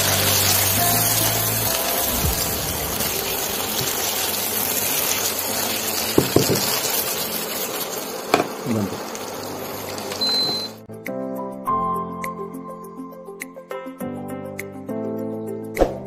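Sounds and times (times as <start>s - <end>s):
gravy sizzling in a pan: 0.0s - 10.8s.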